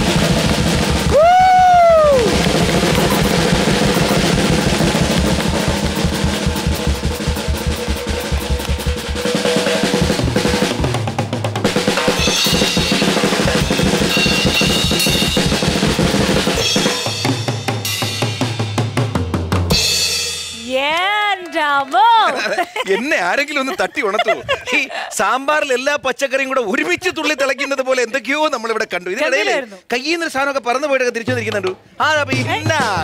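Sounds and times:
drum roll with sticks: 0:00.0 - 0:19.8.

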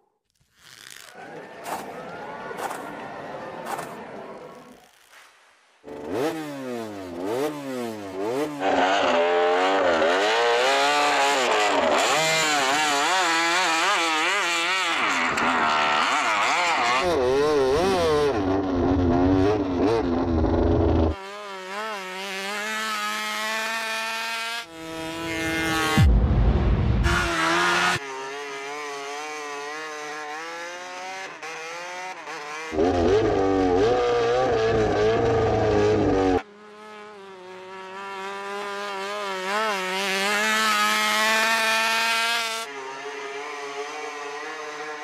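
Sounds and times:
motorcycle engine revving hard: 0:05.8 - 0:45.0.

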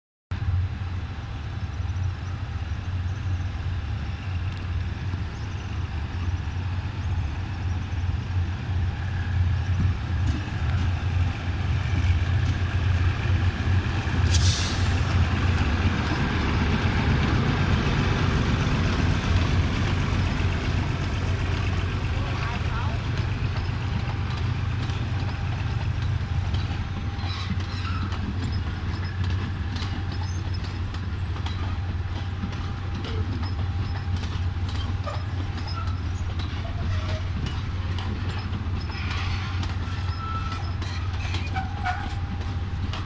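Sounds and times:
diesel locomotive engine humming: 0:00.3 - 0:43.0
sharp hiss of air: 0:14.2 - 0:15.1.

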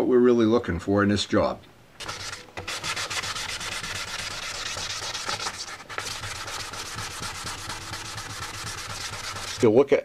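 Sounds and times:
wet sandpaper rasping: 0:02.0 - 0:09.8.

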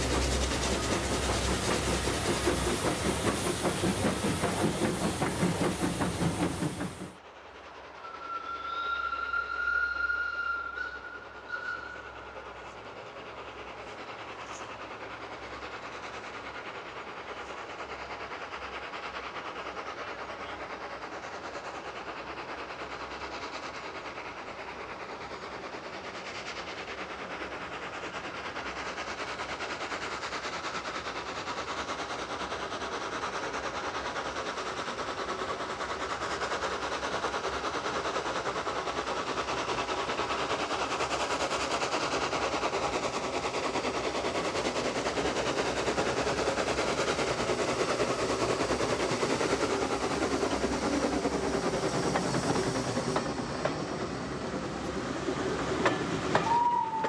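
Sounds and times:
steam locomotives working: 0:00.0 - 0:57.0
steam whistle: 0:08.0 - 0:12.2, 0:56.3 - 0:57.0.

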